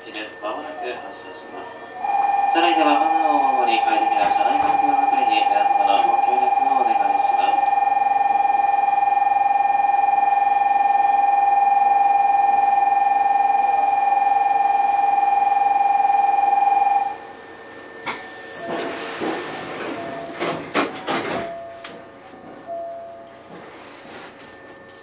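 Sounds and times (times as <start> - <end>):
announcement: 0.0 - 17.2
steady electronic tone: 1.7 - 19.2
train doors clunking shut: 3.4 - 5.2, 18.0 - 24.9
air hiss: 18.1 - 20.4.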